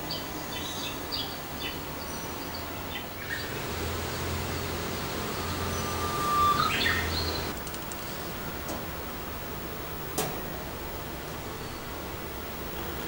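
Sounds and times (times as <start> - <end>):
budgerigar chirping: 3.2 - 7.5
budgerigar long whistle: 3.3 - 7.5.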